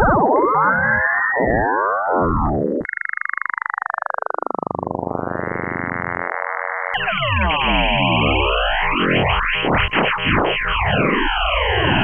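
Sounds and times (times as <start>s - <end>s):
synthesized sine wave pitch glides: 0.0s - 12.0s
dense downward synth sweep: 7.0s - 12.0s.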